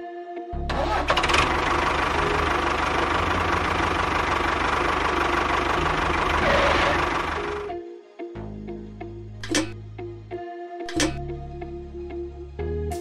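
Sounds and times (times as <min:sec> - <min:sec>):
small tractor engine knocking: 0:01.1 - 0:07.7.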